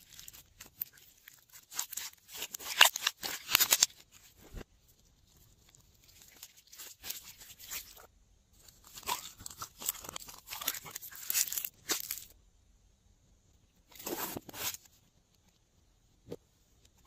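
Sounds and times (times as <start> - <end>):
slime crackling and popping: 0.0 - 4.0.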